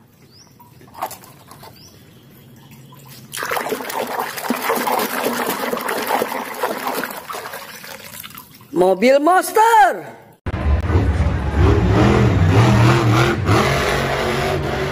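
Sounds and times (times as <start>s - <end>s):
water sloshing in plastic basin: 0.6s - 8.8s.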